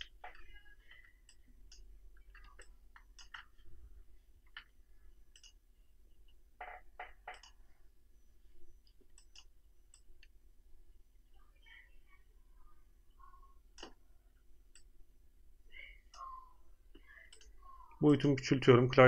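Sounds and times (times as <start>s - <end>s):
mouse and keyboard clicks: 1.3s - 3.5s, 6.6s - 7.6s, 8.9s - 10.3s.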